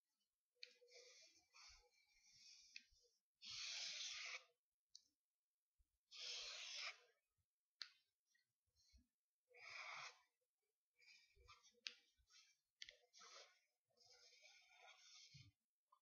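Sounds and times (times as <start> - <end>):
marker scratching on paper: 3.4 - 4.4, 6.1 - 7.0, 9.6 - 10.2, 14.2 - 15.5.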